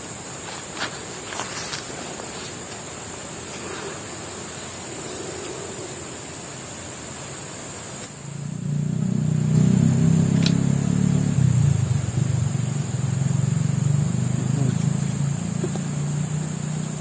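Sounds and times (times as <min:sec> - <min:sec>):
even hiss: 0:00.0 - 0:17.0
high-pitched insect drone: 0:00.0 - 0:17.0
low engine sound: 0:07.6 - 0:17.0.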